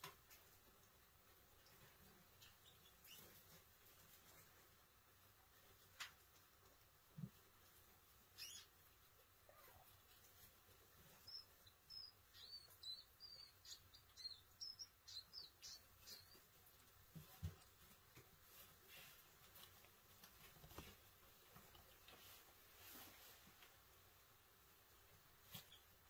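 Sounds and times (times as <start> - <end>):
rat squeaking: 8.3 - 8.8, 11.1 - 16.5.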